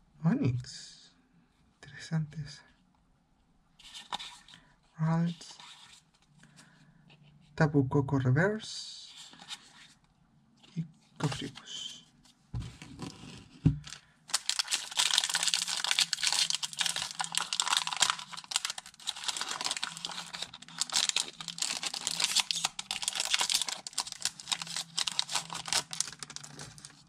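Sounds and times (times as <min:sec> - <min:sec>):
foil wrapper crinkling: 0:13.8 - 0:27.0.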